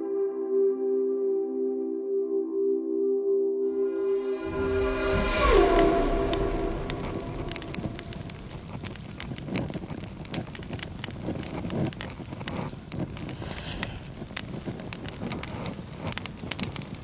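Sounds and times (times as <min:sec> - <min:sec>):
low rush of flame: 0:04.2 - 0:17.0
fire crackling and popping: 0:04.8 - 0:17.0.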